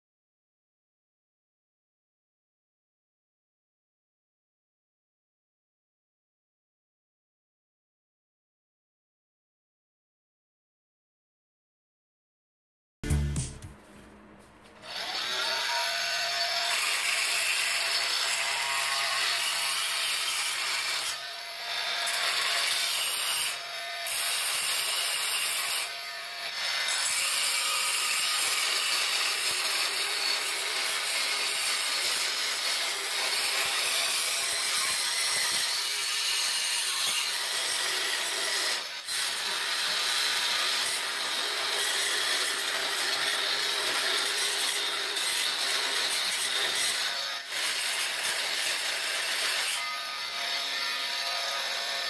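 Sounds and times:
multi-tool grinding grout: 14.8s - 52.0s.

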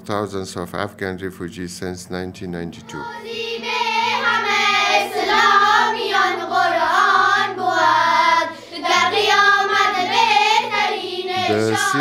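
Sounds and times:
girls singing in unison: 2.8s - 12.0s.

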